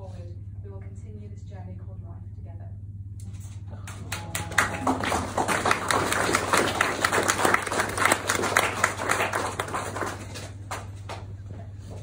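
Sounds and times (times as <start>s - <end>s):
crowd applauding: 3.8s - 11.3s.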